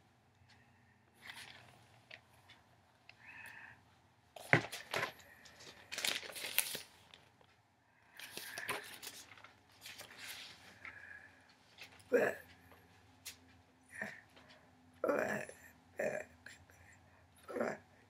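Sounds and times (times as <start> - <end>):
magazine pages rustling: 1.2 - 2.3, 4.4 - 7.6, 8.2 - 11.0.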